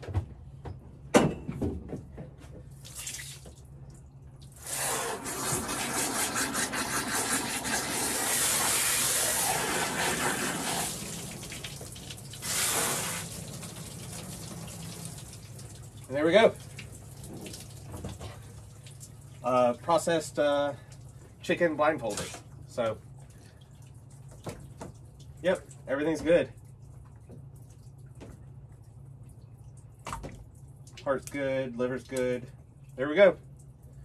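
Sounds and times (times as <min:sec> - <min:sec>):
water from hose spraying: 0:02.8 - 0:03.5, 0:04.4 - 0:19.6.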